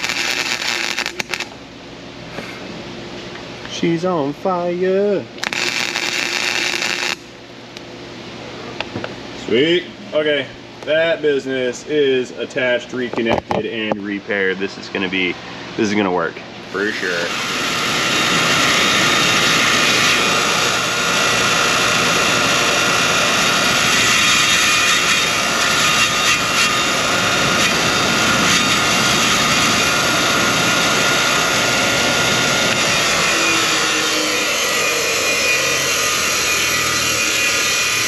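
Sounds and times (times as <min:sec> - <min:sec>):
bench grinder grinding metal: 0:00.0 - 0:01.5, 0:05.4 - 0:07.2, 0:17.0 - 0:38.0.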